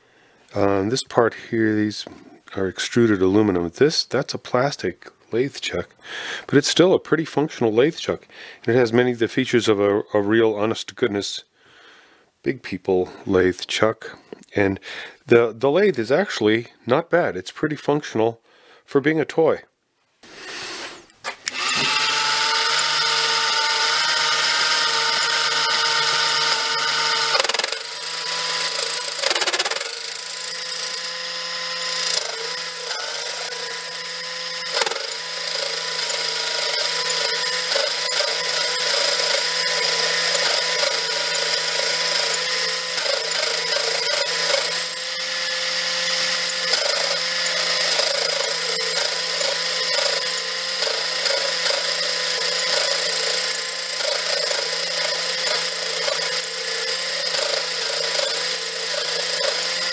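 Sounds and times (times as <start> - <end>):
small lathe motor whine: 21.5 - 59.9.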